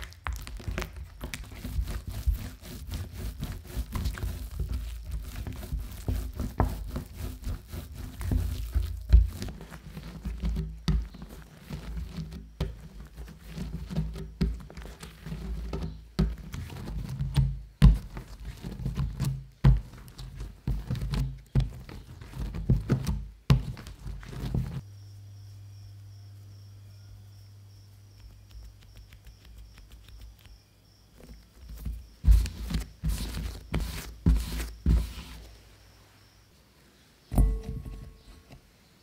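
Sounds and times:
dough thumping and slapping: 0:00.0 - 0:24.8
quiet steady hum: 0:00.0 - 0:39.0.

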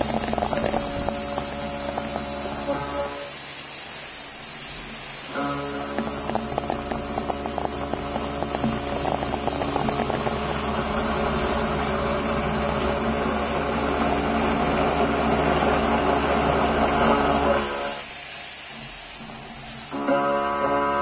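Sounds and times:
end mill cutting whine: 0:00.0 - 0:03.4, 0:05.3 - 0:18.1
milling machine noise: 0:00.0 - 0:03.6, 0:04.7 - 0:18.5, 0:19.2 - 0:21.0.

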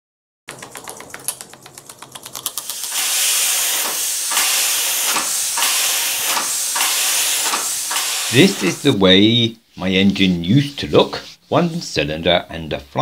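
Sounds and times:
compressed-air engine puffing: 0:02.6 - 0:09.0.

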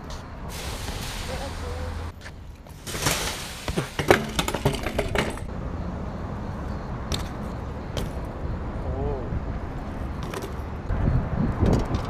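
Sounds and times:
bike crashing against metal mesh: 0:02.7 - 0:05.5.

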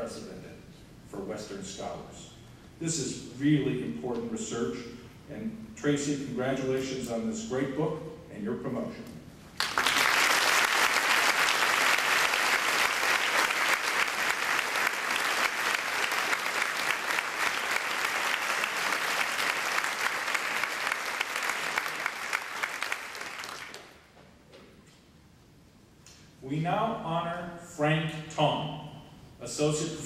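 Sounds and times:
audience applauding: 0:09.6 - 0:24.0.

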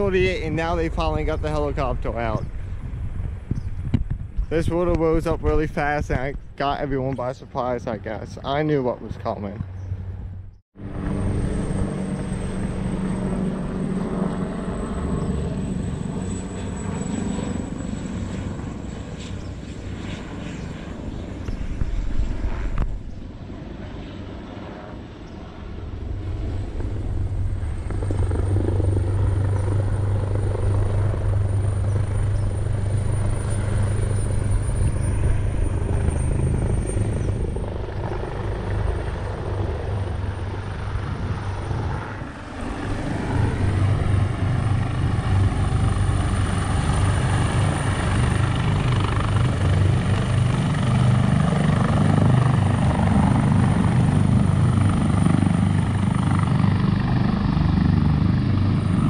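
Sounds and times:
helicopter rotor thudding: 0:26.7 - 0:41.8.

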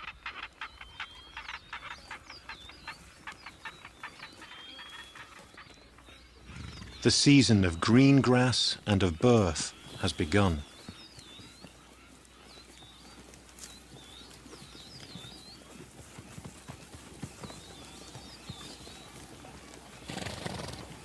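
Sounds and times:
high repeated chirping: 0:00.0 - 0:11.8
hoof steps in grass: 0:00.3 - 0:07.9, 0:09.1 - 0:21.0.

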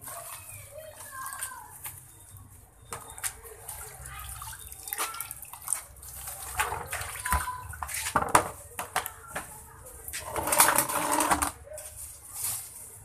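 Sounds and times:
water splashing and dripping: 0:00.0 - 0:08.3.

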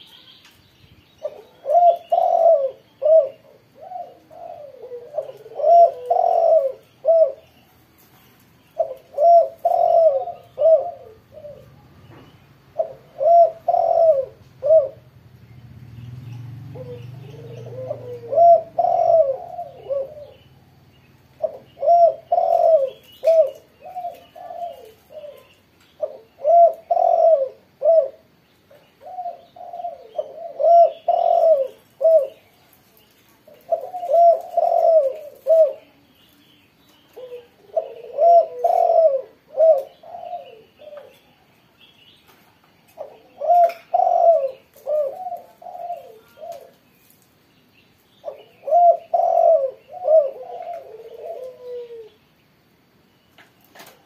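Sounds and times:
dove cooing: 0:01.2 - 0:07.5, 0:08.8 - 0:12.0, 0:12.7 - 0:15.2, 0:16.6 - 0:20.5, 0:21.3 - 0:36.0, 0:37.0 - 0:41.4, 0:42.9 - 0:47.2, 0:48.2 - 0:52.2.

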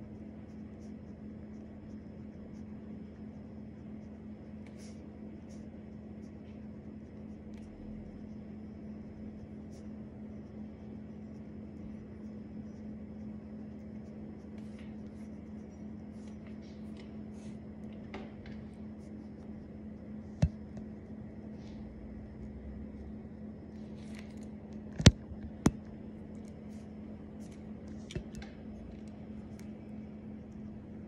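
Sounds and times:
pen scratching on paper: 0:00.0 - 0:17.8.

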